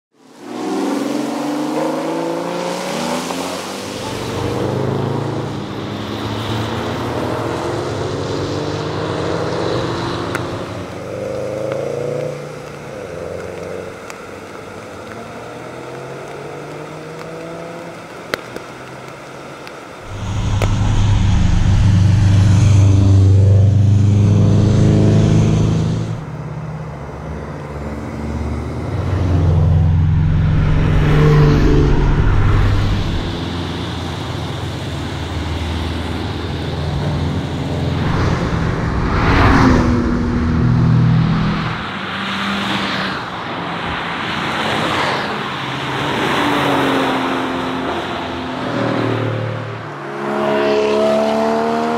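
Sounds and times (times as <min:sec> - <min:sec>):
sports car engine revving: 0:20.0 - 0:26.5.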